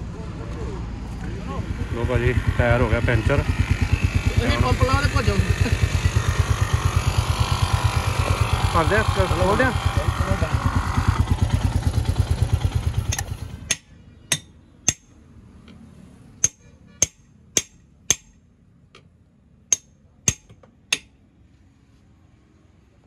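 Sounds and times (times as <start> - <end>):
motorcycle engine running: 0.1 - 14.4
hammer striking metal: 13.1 - 15.2, 16.4 - 18.4, 19.7 - 21.2.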